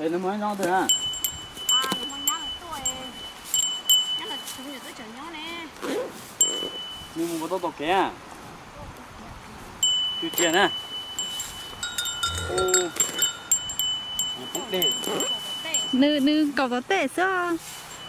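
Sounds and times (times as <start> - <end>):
high chime-like ringing tone: 0.9 - 5.0, 9.8 - 16.5, 17.6 - 18.0.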